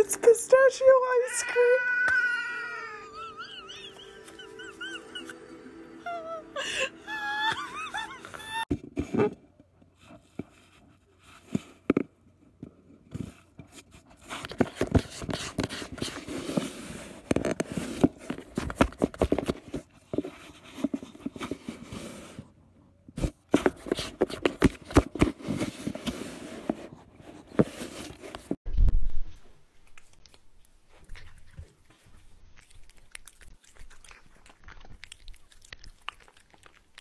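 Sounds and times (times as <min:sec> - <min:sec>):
cat scratching cardboard: 0:13.3 - 0:22.5, 0:23.2 - 0:28.4.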